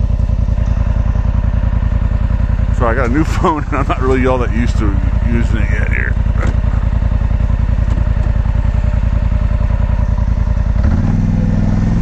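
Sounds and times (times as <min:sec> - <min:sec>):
atv engine idling and revving: 0:00.0 - 0:12.0.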